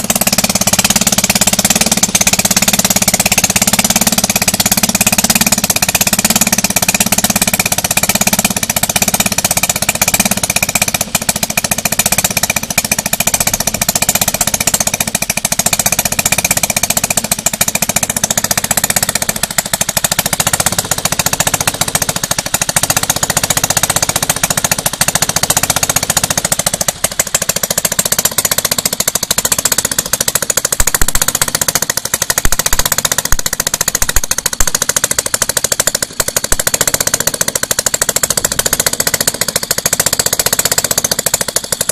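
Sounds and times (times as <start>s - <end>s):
model engine running: 0.0s - 41.9s.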